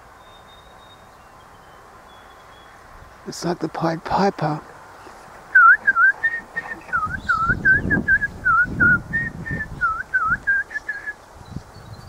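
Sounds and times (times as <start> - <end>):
songbird whistling: 0.2 - 2.8, 5.5 - 12.0.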